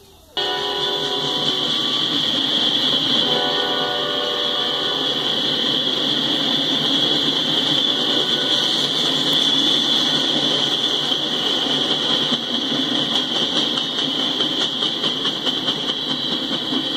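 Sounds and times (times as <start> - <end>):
freight train rumble: 0.0 - 16.9
steel wheels hissing on rail: 0.0 - 16.9
wheels clicking over rail joints: 5.1 - 16.9.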